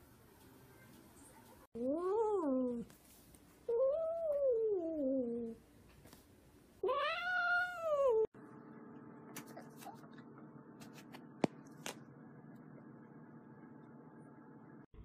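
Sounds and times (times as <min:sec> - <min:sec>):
faint room hum: 0:00.0 - 0:15.0
cat yowling: 0:06.8 - 0:08.3.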